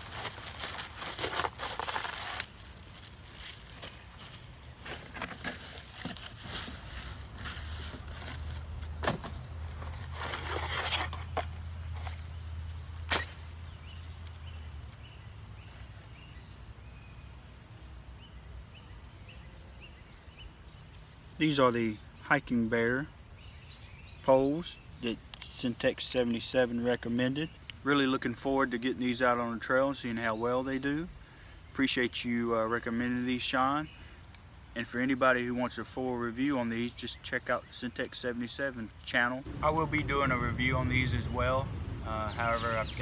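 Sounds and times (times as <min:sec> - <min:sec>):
packaging rustling and scraping: 0:00.0 - 0:12.3.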